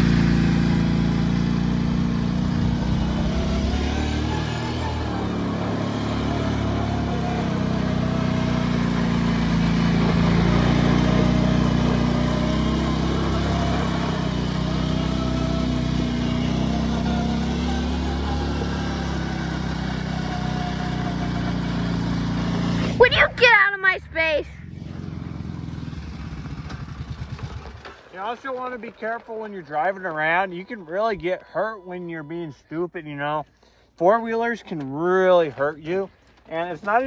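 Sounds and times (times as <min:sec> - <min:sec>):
quad bike engine revving: 0:00.0 - 0:28.9.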